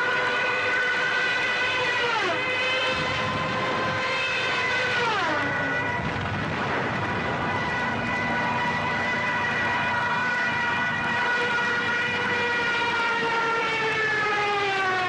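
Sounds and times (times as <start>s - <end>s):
siren wailing: 0.0s - 15.0s
low rumble: 5.6s - 10.7s.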